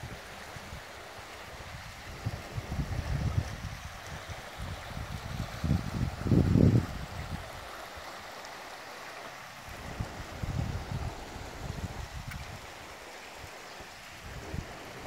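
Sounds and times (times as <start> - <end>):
creek rushing: 0.0 - 15.0
wind buffeting microphone: 1.6 - 7.7, 9.7 - 12.8, 13.4 - 15.0.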